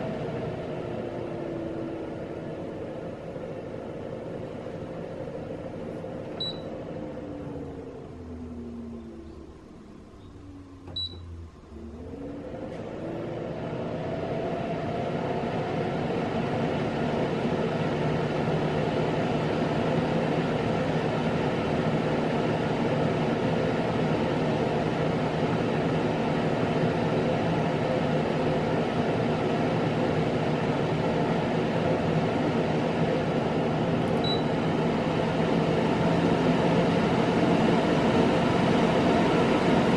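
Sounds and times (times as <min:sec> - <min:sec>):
air purifier fan rushing: 0:00.0 - 0:39.9
control panel beep: 0:06.4 - 0:06.7, 0:10.9 - 0:11.4, 0:34.2 - 0:34.5.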